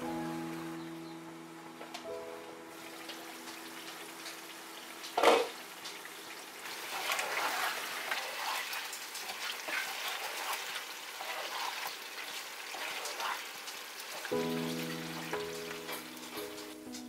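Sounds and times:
sauce bubbling and sizzling: 2.7s - 17.0s
spatula stirring and scraping pan: 6.7s - 16.8s.

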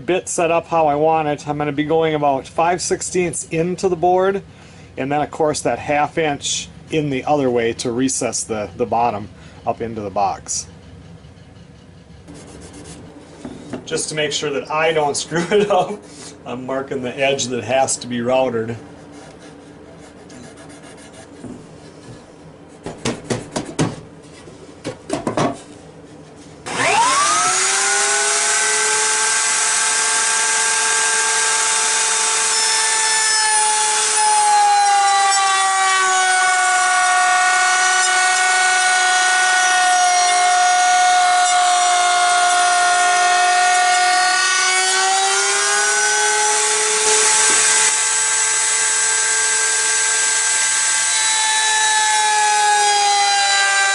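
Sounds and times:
knocks: 22.8s - 24.0s
router motor whining: 26.6s - 53.9s.

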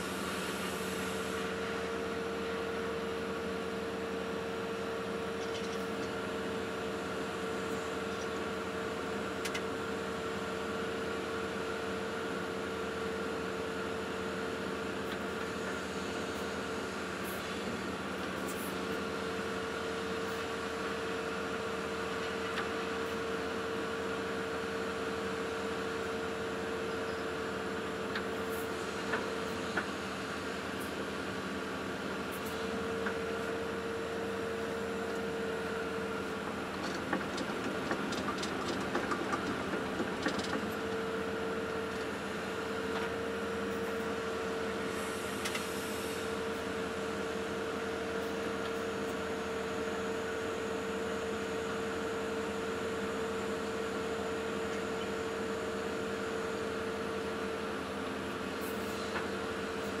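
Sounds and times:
excavator engine and hydraulics: 0.0s - 60.0s.

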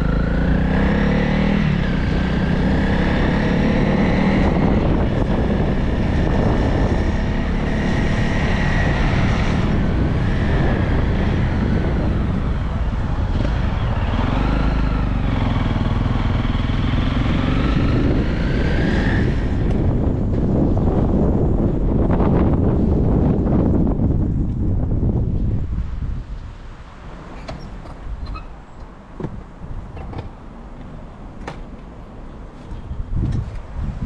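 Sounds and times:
motorcycle engine running: 0.0s - 18.3s.

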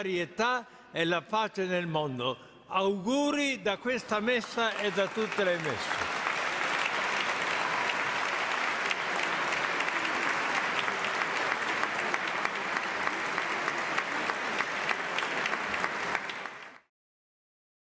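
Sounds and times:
crowd clapping: 4.0s - 16.9s.

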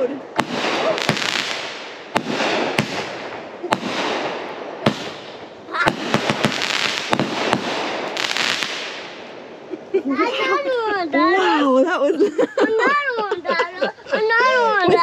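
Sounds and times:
fireworks bangs: 0.0s - 9.9s
crackling hiss: 0.0s - 10.1s.

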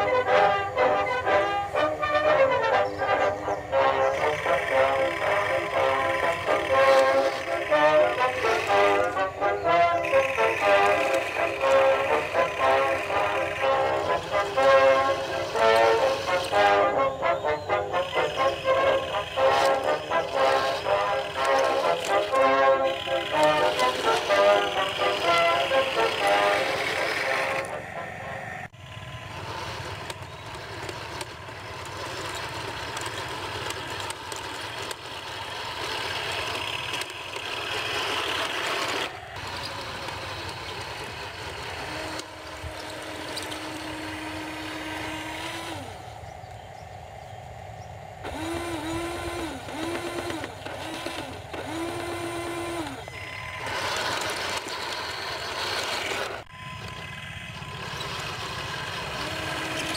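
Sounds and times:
toy tank motors whirring: 0.0s - 46.6s, 48.2s - 59.9s
tracks rattling: 0.0s - 59.9s
held electronic tone: 38.8s - 59.9s.

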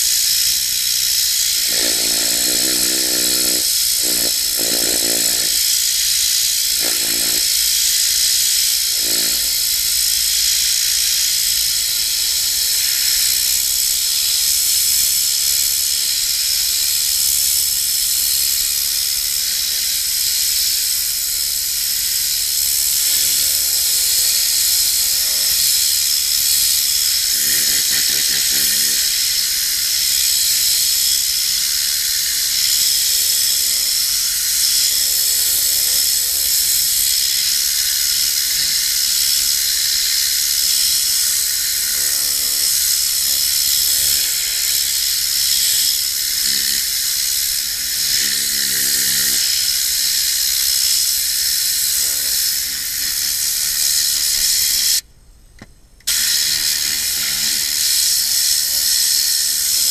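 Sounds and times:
compressed air hissing: 0.0s - 14.1s, 19.0s - 55.0s, 56.0s - 59.9s.

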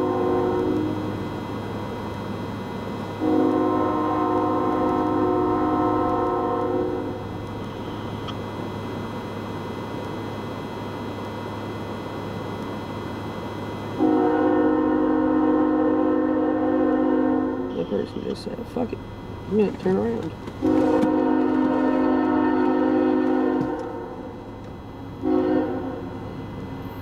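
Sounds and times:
locomotive air horn blasts: 0.0s - 1.2s, 3.2s - 7.2s, 14.0s - 18.3s, 20.6s - 24.3s, 25.2s - 26.2s.

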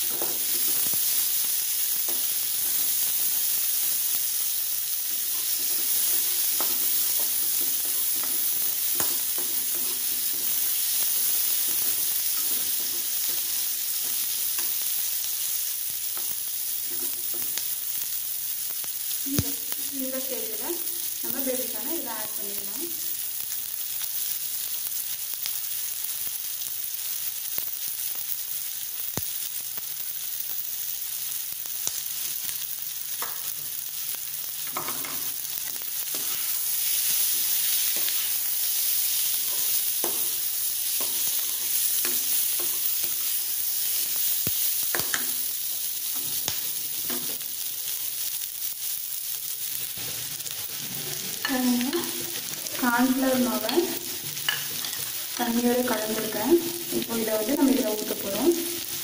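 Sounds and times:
vegetables sizzling in hot oil: 0.0s - 59.0s
metal utensils clinking and scraping: 53.7s - 55.4s.

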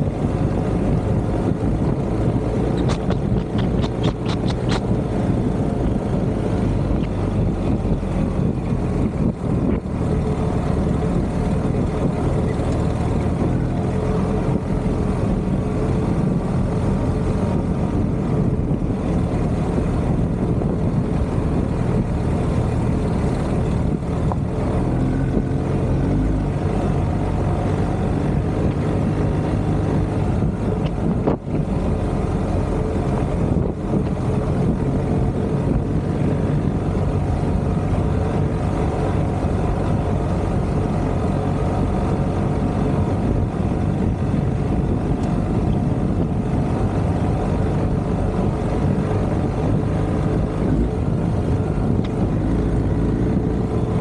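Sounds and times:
motorcycle engine running: 0.0s - 54.0s
wind noise on microphone: 0.0s - 54.0s.

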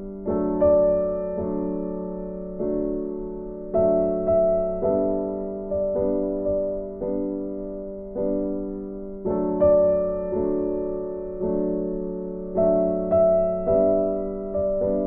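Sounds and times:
slow soft piano chords: 0.0s - 15.0s.

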